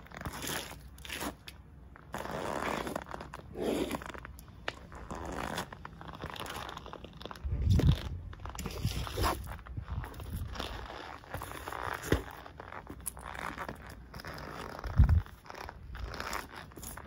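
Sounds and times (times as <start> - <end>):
sneakers scuffing on concrete: 7.8 - 17.0.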